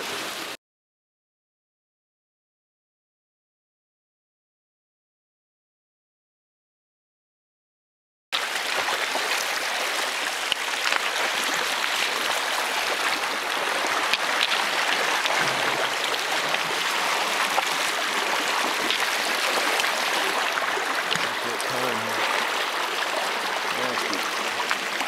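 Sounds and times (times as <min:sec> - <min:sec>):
creek rushing over rocks: 0:08.4 - 0:25.0.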